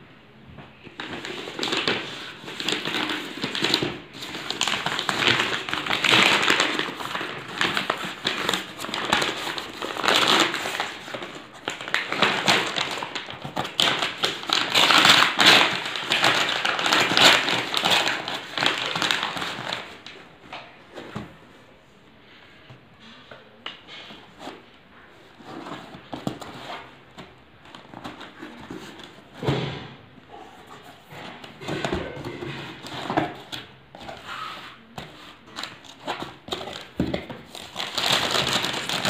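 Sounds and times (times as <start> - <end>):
paper tearing and crumpling: 1.0 - 19.9, 34.1 - 39.0.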